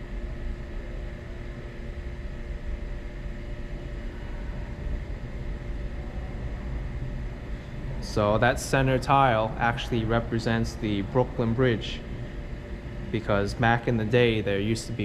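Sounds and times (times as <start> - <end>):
subway station rumble and hum: 0.0 - 15.0.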